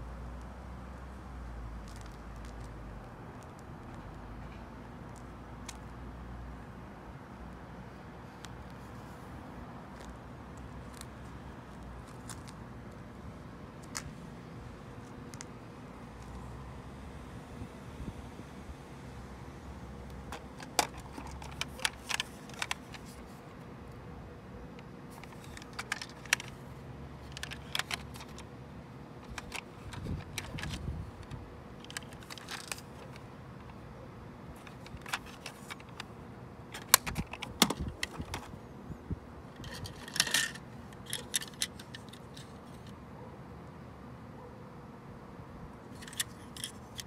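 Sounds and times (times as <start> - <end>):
toy cars clattering on a tabletop: 39.6 - 42.4.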